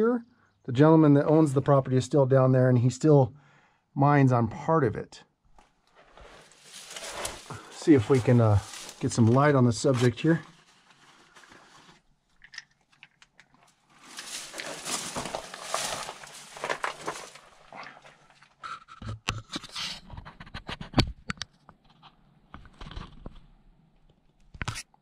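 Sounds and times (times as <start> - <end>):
rustling of dry brush and rock: 5.5 - 18.6.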